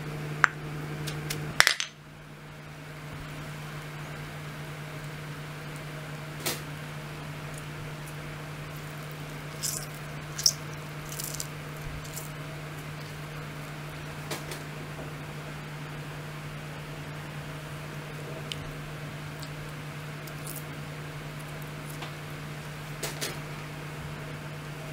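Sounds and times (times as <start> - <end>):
steady low hum: 0.0 - 24.9
wet squishes of squeezed limes: 7.4 - 14.1, 19.3 - 22.2.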